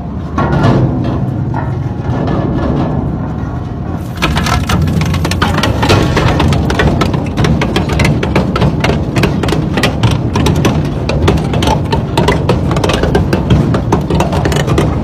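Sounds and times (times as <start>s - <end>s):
shredder cracking and snapping: 4.0s - 7.4s.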